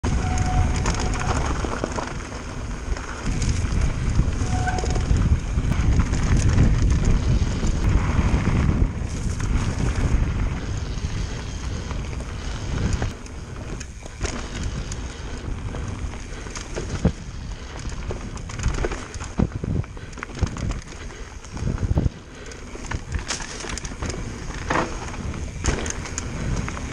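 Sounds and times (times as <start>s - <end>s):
bike rattling and knocking: 0.0s - 26.9s
tyres rolling over dirt: 0.0s - 26.9s
wind rushing over microphone: 0.0s - 26.9s.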